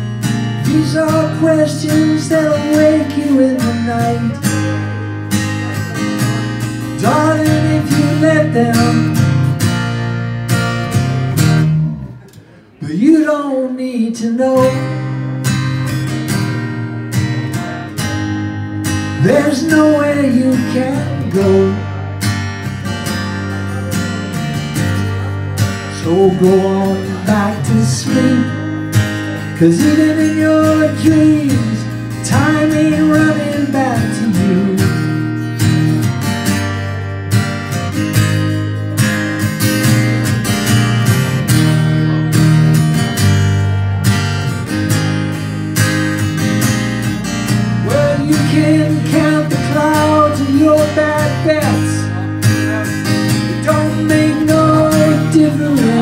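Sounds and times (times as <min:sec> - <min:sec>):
electric bass: 0:00.0 - 0:12.3, 0:14.8 - 0:56.0
acoustic guitar strumming: 0:00.0 - 0:56.0
man singing: 0:00.2 - 0:09.6, 0:12.7 - 0:15.6, 0:19.1 - 0:22.2, 0:24.8 - 0:35.4, 0:47.5 - 0:56.0.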